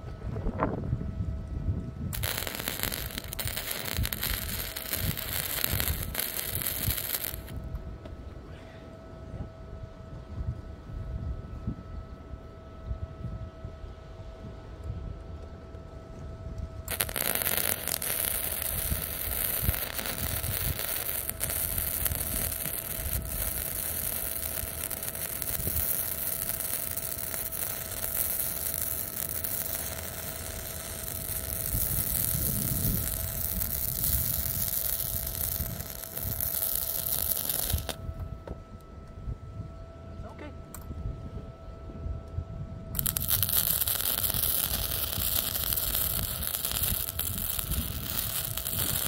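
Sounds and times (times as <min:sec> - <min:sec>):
welding arc crackling hiss: 0:02.1 - 0:07.6, 0:16.9 - 0:38.0, 0:43.0 - 0:49.0.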